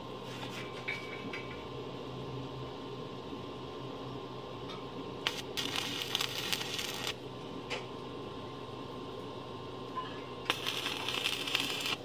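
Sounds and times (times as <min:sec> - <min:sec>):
welding arc crackling: 0:05.2 - 0:07.2, 0:10.5 - 0:12.0.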